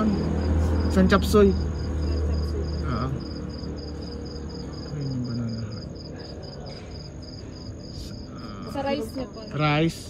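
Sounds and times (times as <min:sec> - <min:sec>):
insect chirping: 0:00.0 - 0:10.0
faint voices murmuring: 0:01.7 - 0:09.3.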